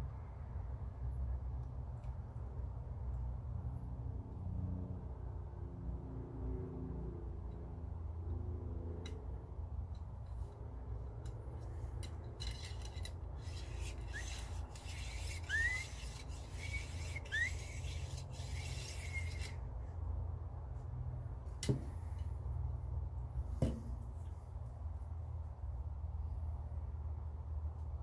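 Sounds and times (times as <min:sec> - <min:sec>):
cloth rubbing on rifle steel: 0:12.4 - 0:19.6.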